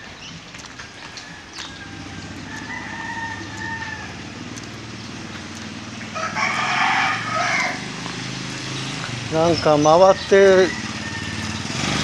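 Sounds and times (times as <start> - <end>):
rooster crowing: 1.2 - 4.4, 6.1 - 8.0, 10.3 - 12.0.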